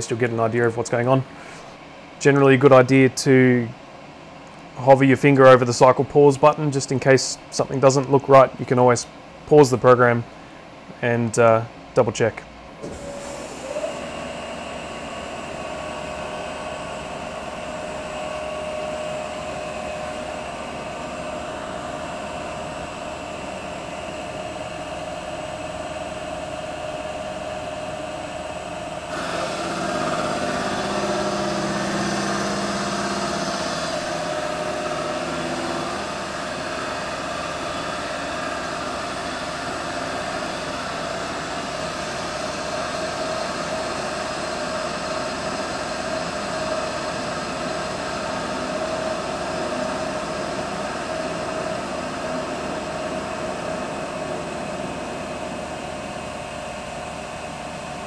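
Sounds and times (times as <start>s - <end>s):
lathe machining with whine: 12.8s - 58.0s.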